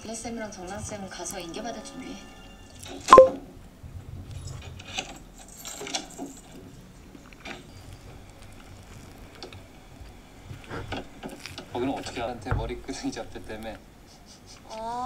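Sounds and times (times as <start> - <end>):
plastic tub and spoon clicks: 3.2 - 3.4.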